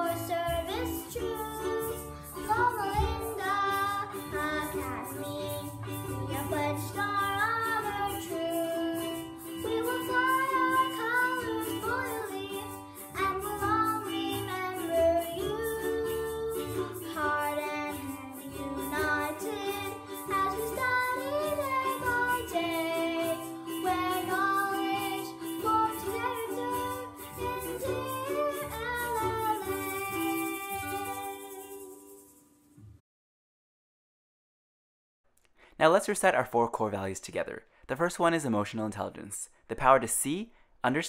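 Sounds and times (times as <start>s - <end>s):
girl singing: 0.0s - 32.4s.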